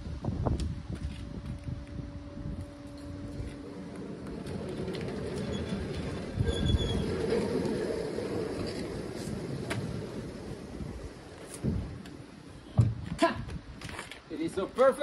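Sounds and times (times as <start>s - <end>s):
sliding door rumbling on track: 0.0s - 13.1s
sliding door squeal: 3.6s - 10.2s.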